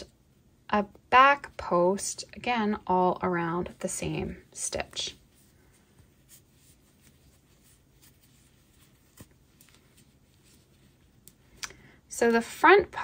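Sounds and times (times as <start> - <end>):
crochet hook rustling yarn: 1.2 - 11.6.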